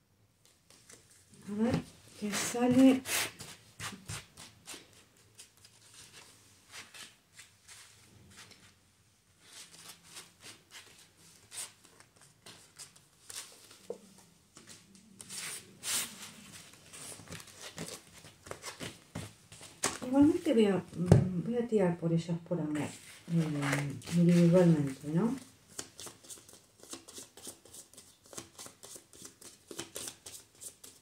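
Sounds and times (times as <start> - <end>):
cards being shuffled: 23.0 - 31.0.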